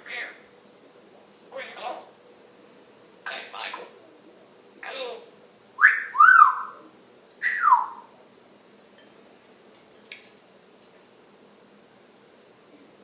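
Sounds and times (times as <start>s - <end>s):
parrot whistling: 5.8s - 6.8s, 7.4s - 8.1s.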